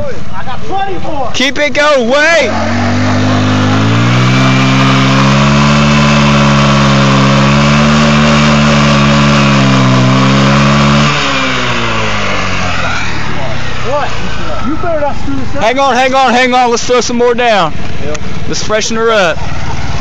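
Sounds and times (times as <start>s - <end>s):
tyre spinning on asphalt: 2.2s - 14.6s
scooter engine revving hard: 2.2s - 15.8s, 19.3s - 20.0s.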